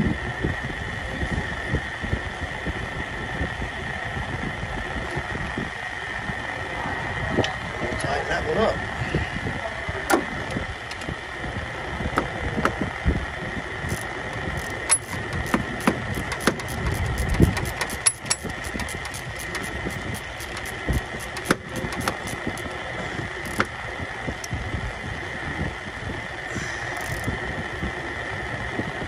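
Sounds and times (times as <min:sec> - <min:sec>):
constant high whine: 0:00.0 - 0:29.0
workshop noise: 0:13.8 - 0:23.8
hand ratchet clicking: 0:13.9 - 0:22.8, 0:23.4 - 0:23.7, 0:27.0 - 0:27.3.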